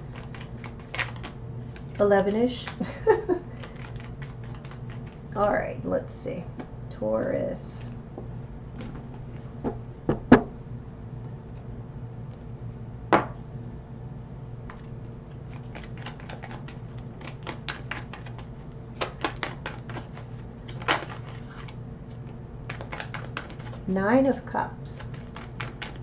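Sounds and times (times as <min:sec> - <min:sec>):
cards being shuffled: 0:00.0 - 0:02.0, 0:03.5 - 0:05.3, 0:14.7 - 0:23.9, 0:25.0 - 0:26.0
faint steady hum: 0:00.0 - 0:26.0.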